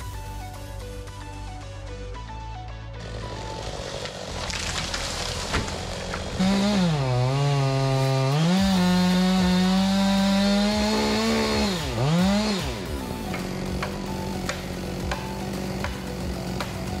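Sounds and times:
chainsaw cutting into tree trunk: 0:03.0 - 0:17.0.

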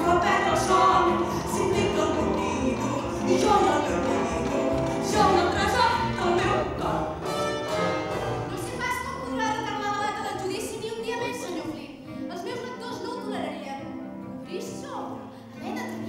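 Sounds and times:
person singing: 0:00.0 - 0:07.5
orchestra playing jazzy show tune: 0:00.0 - 0:10.2.

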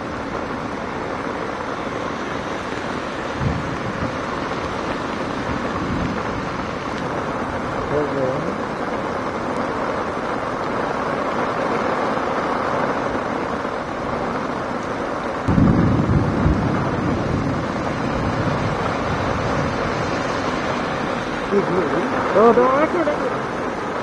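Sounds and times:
heavy rain pouring: 0:00.0 - 0:24.0
low rumble: 0:15.5 - 0:20.0.

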